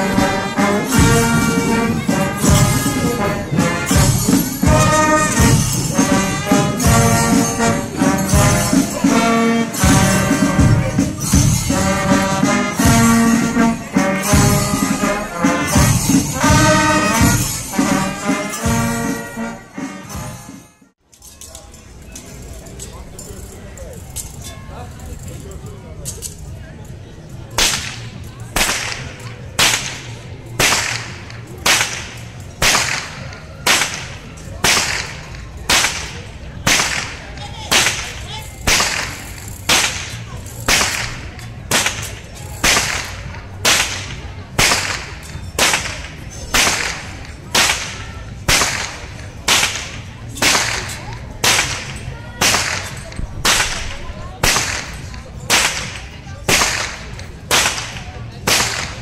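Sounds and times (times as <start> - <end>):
whip cracking: 27.5 - 59.0.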